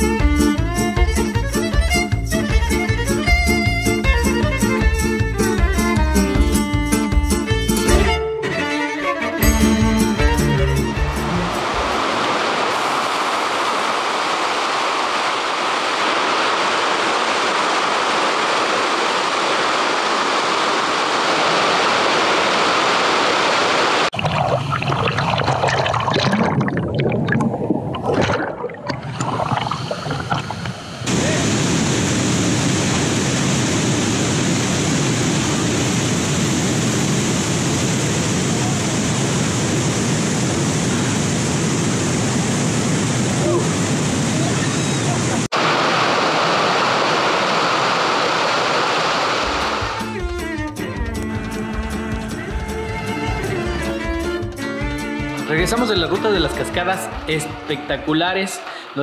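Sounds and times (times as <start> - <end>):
rushing stream water: 9.7 - 50.2
churning whitewater: 10.4 - 50.1
waterfall pouring into pool: 11.7 - 36.2, 45.5 - 50.0.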